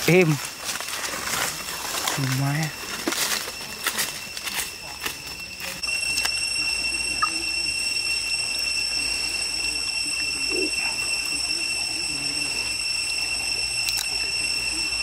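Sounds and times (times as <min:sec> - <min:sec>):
insect drone: 0:00.0 - 0:15.0.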